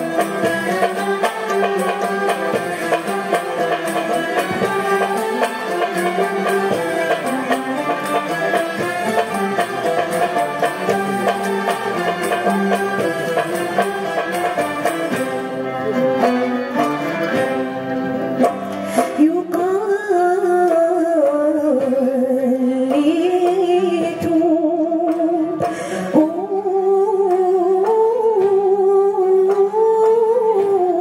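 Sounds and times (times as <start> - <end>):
woman singing with vibrato: 0.0 - 8.6, 19.0 - 31.0
string ensemble playing melody: 0.0 - 31.0.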